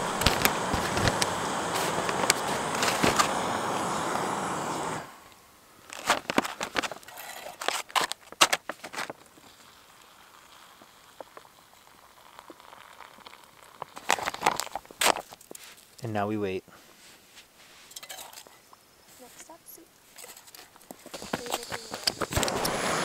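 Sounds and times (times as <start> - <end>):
foil pouch crinkling: 0.0 - 3.2, 5.8 - 9.6, 13.0 - 16.0
stove burner hissing: 0.0 - 6.6, 9.2 - 15.6, 20.0 - 23.0.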